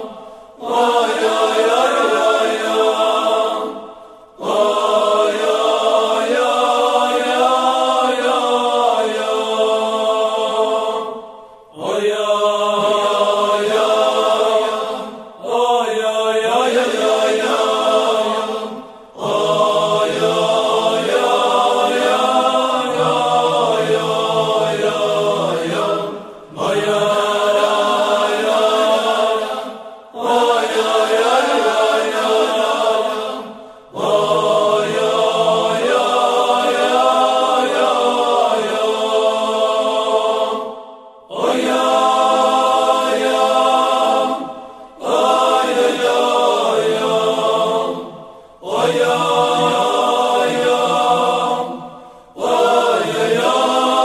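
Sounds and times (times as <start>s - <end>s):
person chanting a melody: 41.3s - 51.8s.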